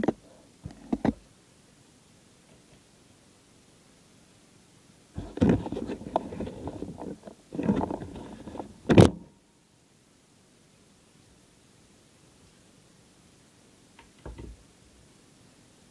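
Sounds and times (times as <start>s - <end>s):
device handling rustling: 5.2s - 9.2s.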